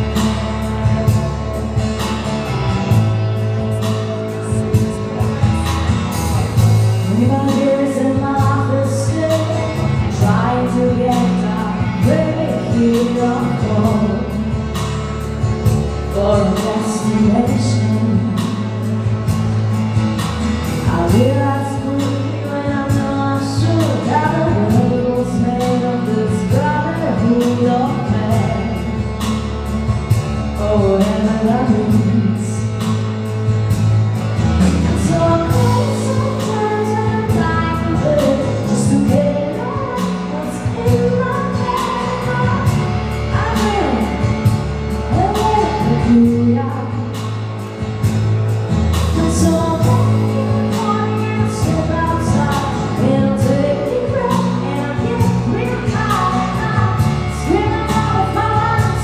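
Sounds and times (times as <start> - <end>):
pop music with drums and bass: 0.0 - 59.0
person singing: 3.2 - 14.5.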